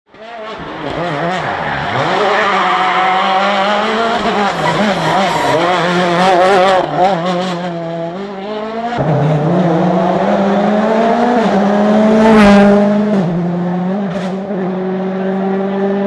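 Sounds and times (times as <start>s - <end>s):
rally car engine climbing in pitch: 0.1s - 16.0s
rally car engine revving: 0.1s - 16.0s.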